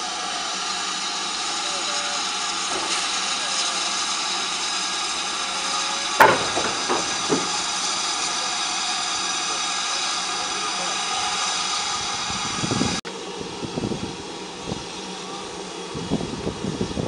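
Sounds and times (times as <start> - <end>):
buffers clanking: 0.0 - 13.0
steam locomotive hissing: 0.0 - 17.0
metallic knocks: 6.2 - 7.8.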